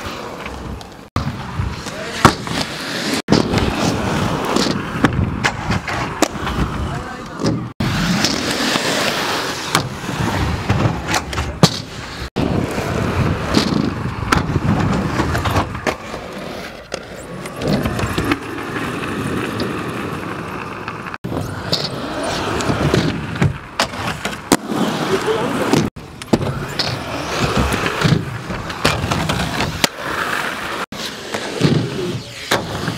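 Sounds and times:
skate wheels rolling on concrete: 0.0s - 32.9s
skateboard knocks and scraping: 0.0s - 32.9s.

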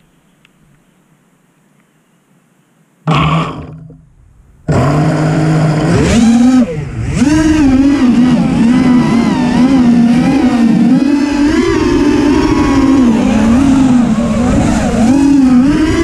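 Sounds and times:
quadcopter motors whining: 4.7s - 16.0s.

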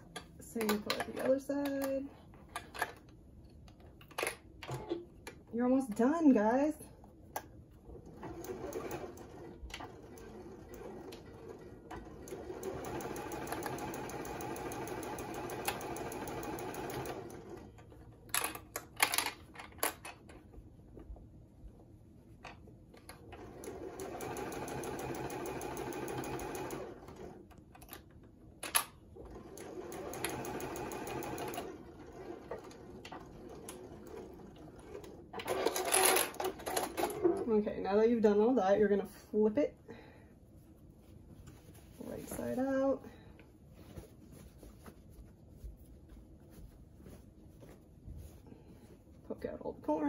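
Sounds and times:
sewing machine stitching: 8.0s - 17.7s, 23.4s - 27.4s, 29.2s - 37.4s.

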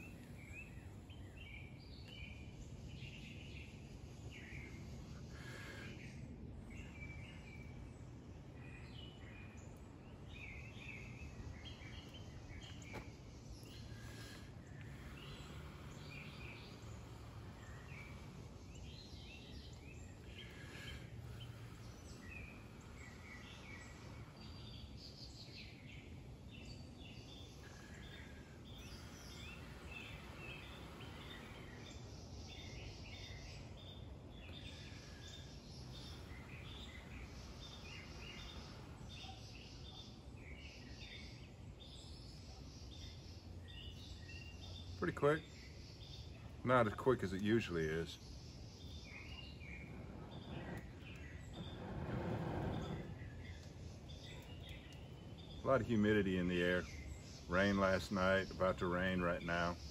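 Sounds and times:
low outdoor background: 0.0s - 59.9s
songbirds chirping: 0.0s - 59.9s.

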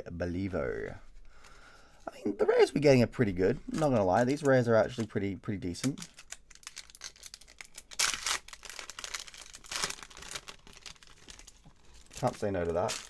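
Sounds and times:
foil wrapper crinkling and tearing: 5.8s - 13.0s.

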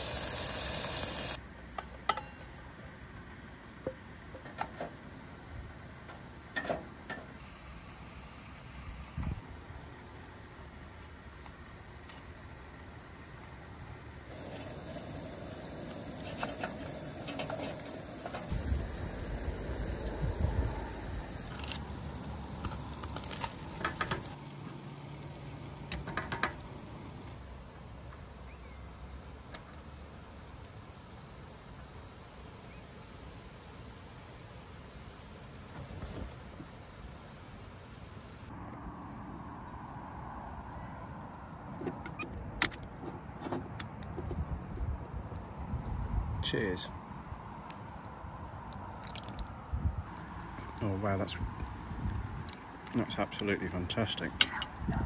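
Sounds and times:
faint steady hiss: 0.0s - 38.6s.

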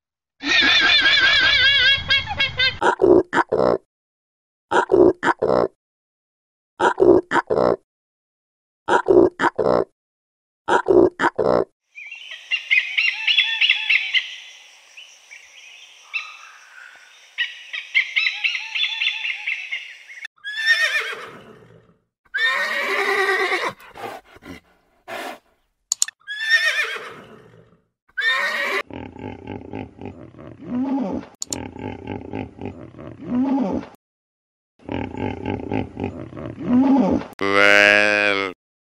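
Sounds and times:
horses whinnying: 0.4s - 2.6s, 20.4s - 25.4s, 26.2s - 28.9s, 36.7s - 38.6s
low rhythmic grunting: 23.7s - 25.4s, 37.4s - 38.6s.

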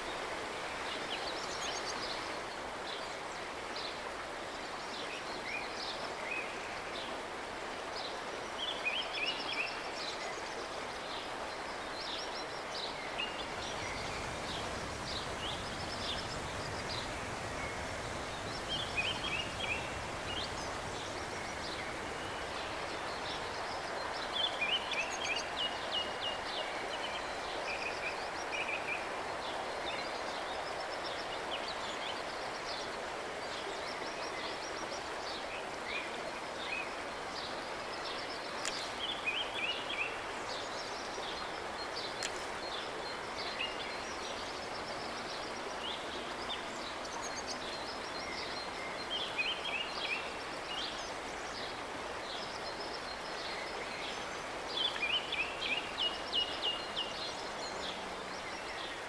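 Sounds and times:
river water rushing over riffles: 0.0s - 59.0s
songbirds chirping: 0.0s - 59.0s.

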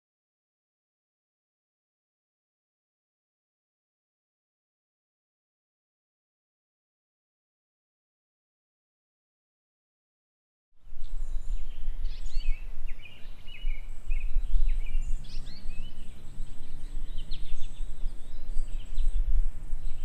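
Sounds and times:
low outdoor rumble: 10.8s - 20.0s
songbirds chirping: 10.8s - 20.0s.

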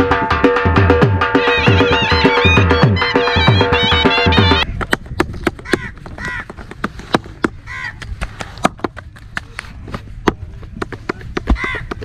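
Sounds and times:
crow cawing: 5.6s - 6.5s, 7.6s - 8.0s, 11.5s - 11.9s.

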